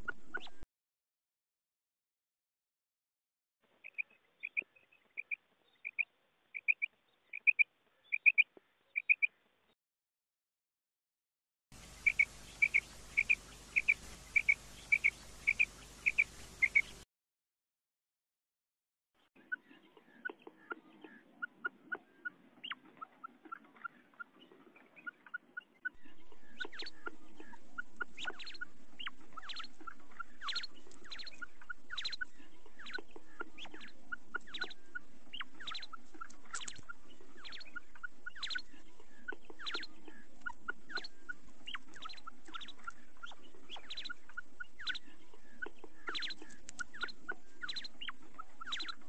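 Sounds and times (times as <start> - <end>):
quail calling: 0.0 - 0.6, 6.6 - 9.3, 11.8 - 17.0, 25.0 - 49.0.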